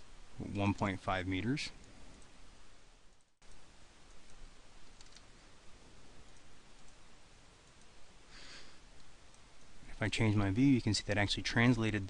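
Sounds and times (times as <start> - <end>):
low background hiss: 0.0 - 12.0
soft rush of noise: 0.0 - 12.0
faint computer mouse clicks: 3.1 - 5.3, 6.2 - 7.0, 9.0 - 9.7.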